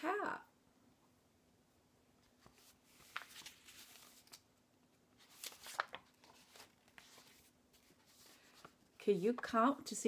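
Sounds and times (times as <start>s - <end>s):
book pages turning: 2.2s - 4.5s, 5.1s - 9.5s.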